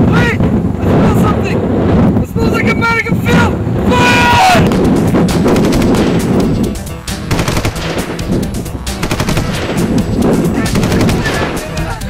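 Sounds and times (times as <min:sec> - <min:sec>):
rapid automatic gunfire: 0:04.7 - 0:06.4, 0:07.3 - 0:08.3, 0:09.0 - 0:11.8.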